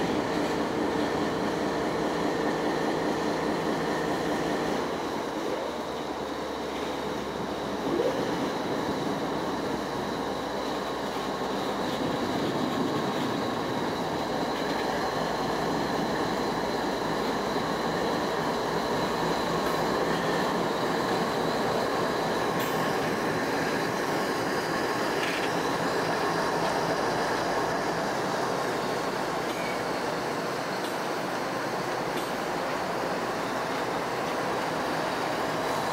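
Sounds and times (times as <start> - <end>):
diesel locomotive engines droning: 0.0 - 35.9.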